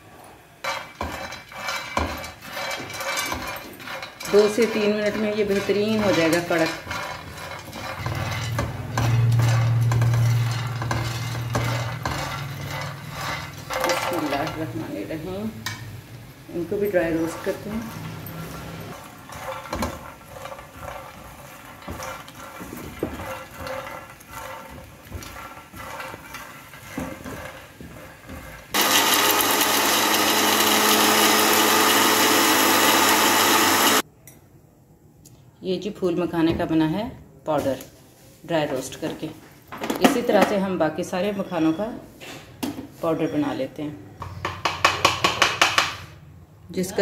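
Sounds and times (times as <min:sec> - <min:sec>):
spatula scraping a pan: 0:00.0 - 0:15.9, 0:16.5 - 0:34.0
seeds rattling in a pan: 0:00.6 - 0:14.8
mixer grinder running: 0:28.7 - 0:34.0.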